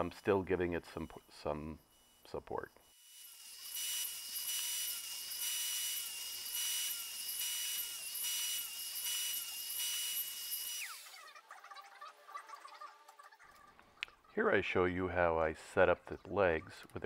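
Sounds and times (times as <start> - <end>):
saw motor whine: 1.0 - 11.3
saw cutting wood: 2.0 - 11.3.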